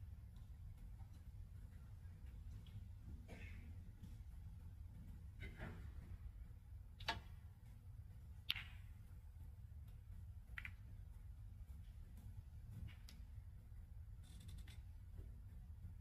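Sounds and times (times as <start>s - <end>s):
low hum: 0.0s - 16.0s
snooker balls clicking: 8.3s - 9.2s, 9.8s - 11.2s.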